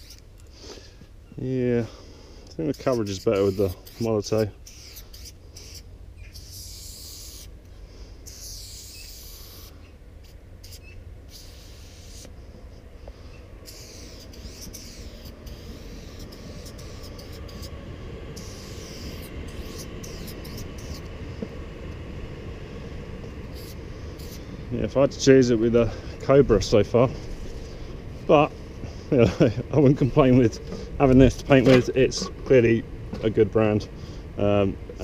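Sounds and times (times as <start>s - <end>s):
spray can hissing: 8.3s - 9.7s, 10.6s - 12.3s, 13.6s - 17.7s, 18.4s - 21.0s, 23.5s - 24.4s
low rumble: 15.2s - 35.0s.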